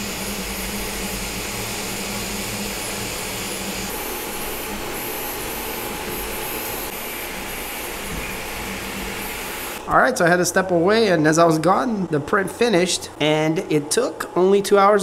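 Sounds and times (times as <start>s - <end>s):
stepper motors humming: 0.0s - 9.8s
printer whirring: 0.0s - 9.9s.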